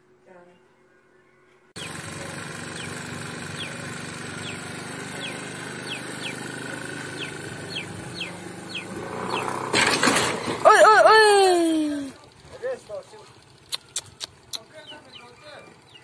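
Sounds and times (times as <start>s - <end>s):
bird chirping: 0.3s - 9.7s, 13.5s - 16.0s
scooter engine running: 1.8s - 16.0s.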